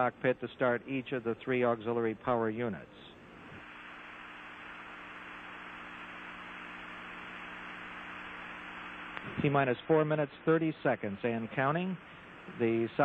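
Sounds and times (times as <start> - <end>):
low electrical hum: 0.0 - 13.0
steady hiss: 3.2 - 13.0.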